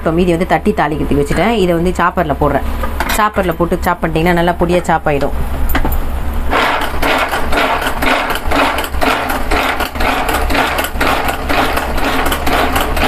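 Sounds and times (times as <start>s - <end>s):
chopper blades rattling in plastic bowl: 6.5s - 13.0s.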